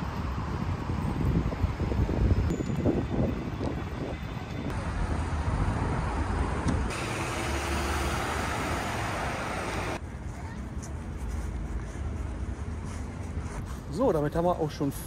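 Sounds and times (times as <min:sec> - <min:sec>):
cars passing on a street: 0:00.0 - 0:14.0.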